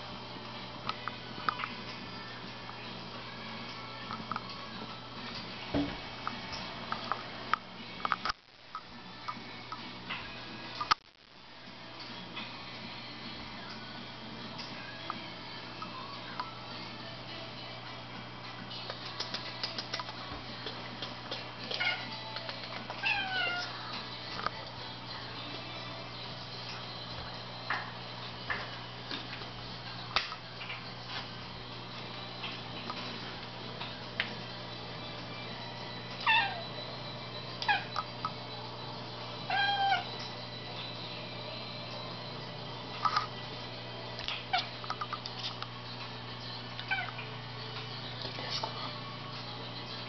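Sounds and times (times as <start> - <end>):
cat meowing: 23.0 - 23.7, 36.2 - 36.7, 39.5 - 40.2.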